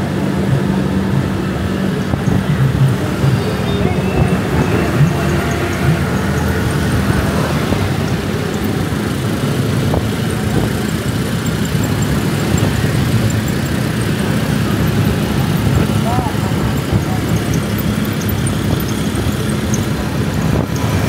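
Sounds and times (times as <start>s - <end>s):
motorbike engine running: 0.0s - 21.0s
road and traffic noise: 0.0s - 21.0s.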